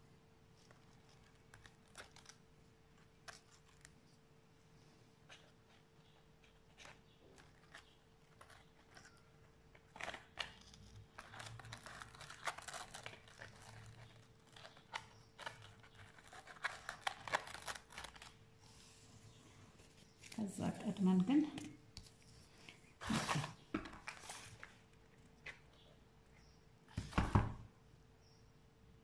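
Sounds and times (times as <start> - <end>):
faint steady hum: 0.0 - 29.0
lace ribbon rustling and crinkling: 5.3 - 18.4, 19.8 - 25.8
hands brushing plastic-covered table: 19.7 - 24.8.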